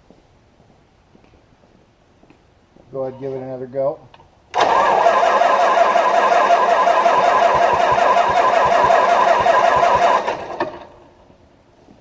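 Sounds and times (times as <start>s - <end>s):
starter cranking engine: 4.5s - 11.0s.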